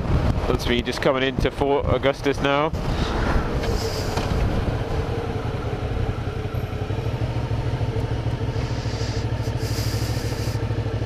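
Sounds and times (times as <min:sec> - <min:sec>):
motorcycle engine running at low revs: 0:00.0 - 0:02.1, 0:02.7 - 0:11.0.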